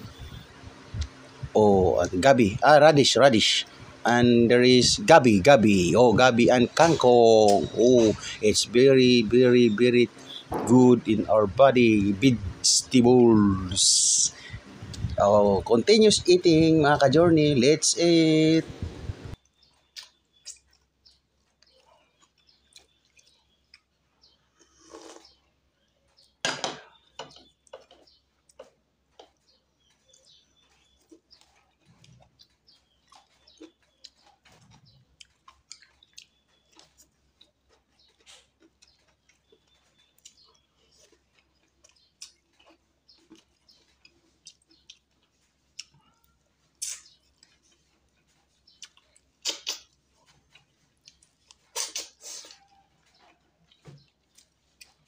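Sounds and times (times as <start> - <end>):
person chewing and lip smacking: 14.5 - 15.2, 19.3 - 55.0.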